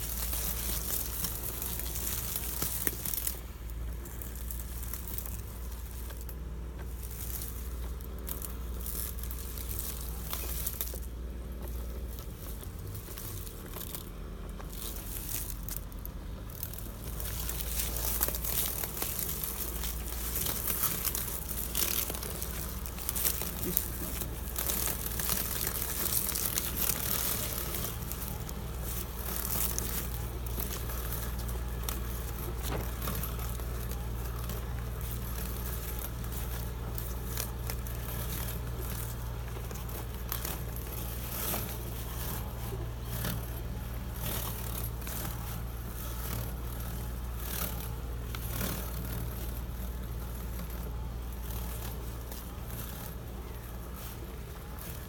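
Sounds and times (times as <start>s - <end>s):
leaves crackling: 0.0s - 55.0s
robotic lawn mower humming: 0.0s - 55.0s.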